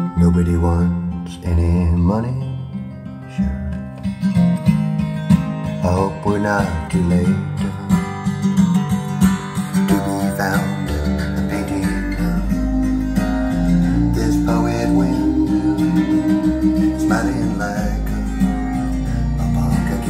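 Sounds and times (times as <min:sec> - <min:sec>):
acoustic guitar song: 0:00.0 - 0:20.0
deep bass line: 0:03.3 - 0:07.9, 0:10.0 - 0:20.0.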